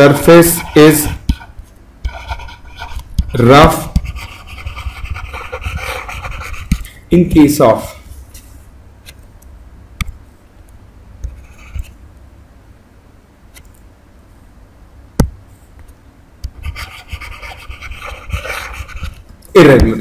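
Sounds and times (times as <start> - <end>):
stylus scratching on tablet: 0.0 - 6.8, 11.2 - 12.0, 16.6 - 20.0.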